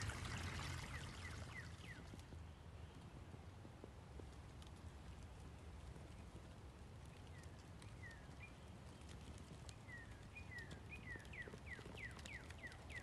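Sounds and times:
low steady background hiss: 0.0s - 13.0s
bird whistling down-slurred notes: 0.8s - 2.1s.

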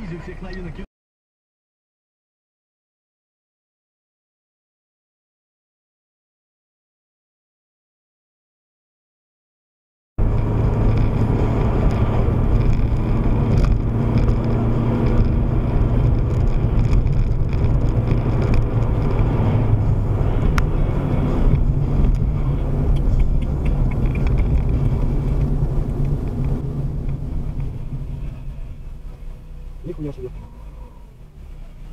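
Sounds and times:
car engine and tyre rumble: 0.0s - 0.9s, 10.2s - 31.9s.

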